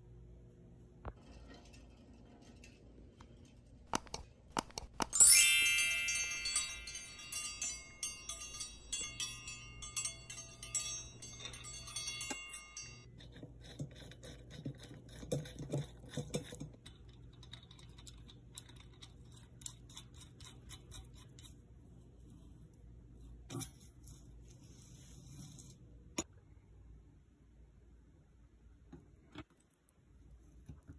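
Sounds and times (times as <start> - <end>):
faint clicks and taps: 3.9 - 5.2
bright many-toned chiming: 5.1 - 13.1.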